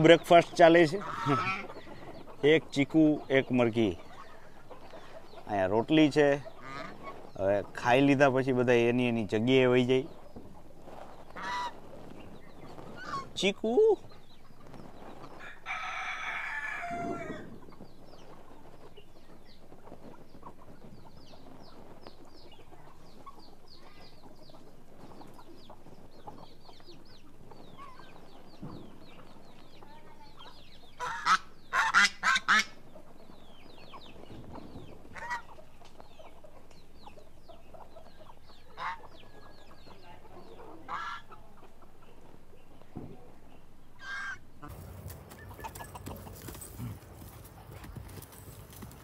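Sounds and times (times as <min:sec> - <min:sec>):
loud chicken calls: 0:00.0 - 0:07.5, 0:11.0 - 0:12.0, 0:12.6 - 0:14.0, 0:15.1 - 0:17.8, 0:30.4 - 0:32.9, 0:33.9 - 0:35.8, 0:37.7 - 0:40.0, 0:40.8 - 0:41.4, 0:44.0 - 0:46.9
chicks peeping: 0:00.0 - 0:49.0
rooster crowing: 0:15.4 - 0:17.5.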